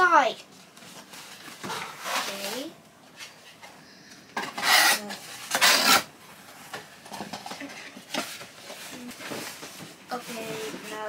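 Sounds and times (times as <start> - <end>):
cardboard scraping: 4.5 - 6.1.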